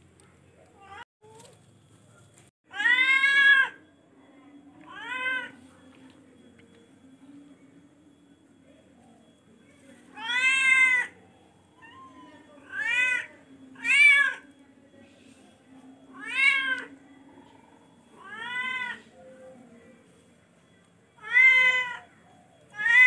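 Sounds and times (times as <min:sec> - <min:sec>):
cat meowing loudly: 0:02.7 - 0:03.8, 0:10.2 - 0:11.2, 0:21.2 - 0:22.1, 0:22.8 - 0:23.0.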